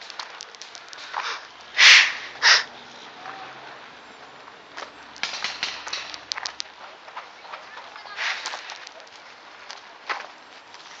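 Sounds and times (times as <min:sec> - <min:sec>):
footsteps on gravel: 0:00.0 - 0:11.0
short hissing bursts: 0:01.2 - 0:02.7.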